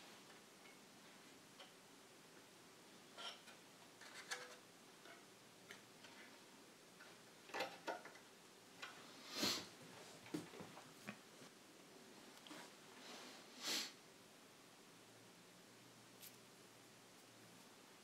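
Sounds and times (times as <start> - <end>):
short hiss-like rustle: 9.0 - 9.8, 12.4 - 14.0.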